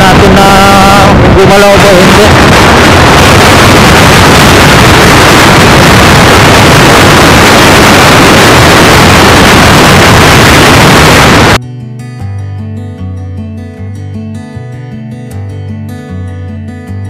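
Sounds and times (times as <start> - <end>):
wind rushing on microphone: 0.0 - 11.6.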